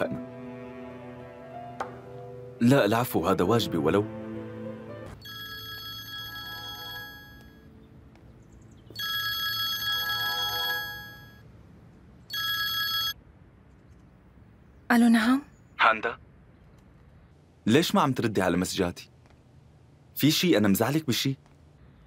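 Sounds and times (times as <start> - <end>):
smartphone ringtone chime: 5.2 - 7.7, 9.0 - 11.4.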